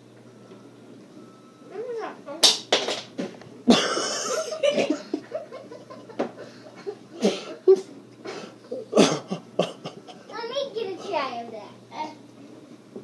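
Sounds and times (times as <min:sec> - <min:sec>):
boy coughing and sputtering: 0:03.7 - 0:05.3, 0:07.2 - 0:10.3
laughter: 0:03.7 - 0:07.0.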